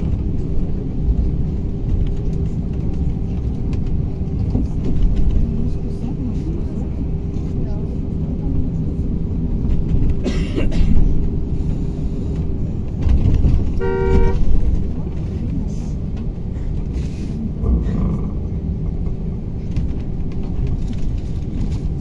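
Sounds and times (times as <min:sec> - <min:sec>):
bus cabin rumble: 0:00.0 - 0:22.0
vehicle horn toot: 0:13.8 - 0:14.5.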